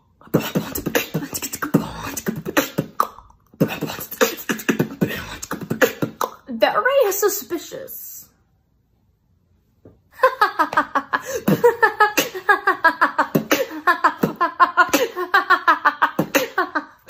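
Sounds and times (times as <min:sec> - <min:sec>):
woman laughing hard: 0:10.2 - 0:17.0.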